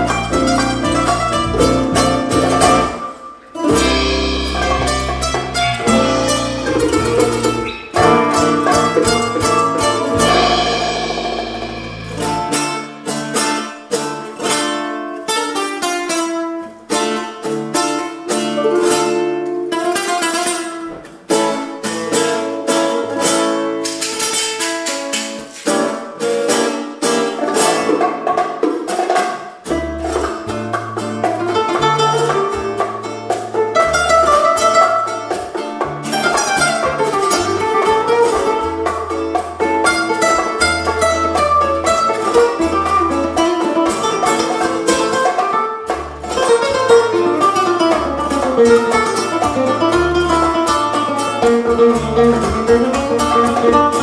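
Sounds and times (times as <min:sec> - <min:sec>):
percussion: 0:00.0 - 0:54.0
plucked nylon-string guitars: 0:00.0 - 0:54.0
bass guitar low notes: 0:03.7 - 0:12.8.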